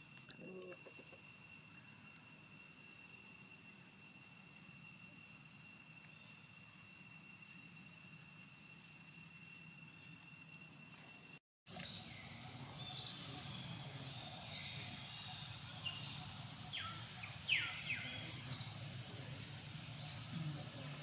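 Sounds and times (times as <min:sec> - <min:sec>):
low steady hum: 0:00.0 - 0:21.0
birds chirping: 0:11.7 - 0:21.0.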